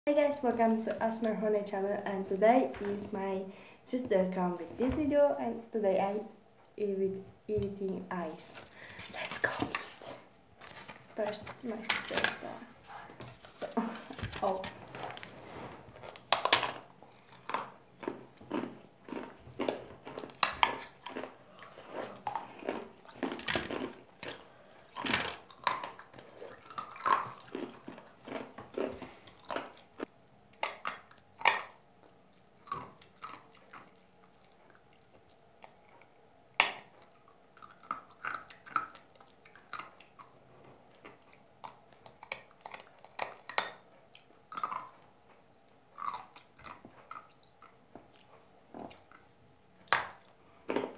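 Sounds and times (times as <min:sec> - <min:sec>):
ice being chewed: 0:13.3 - 0:50.9.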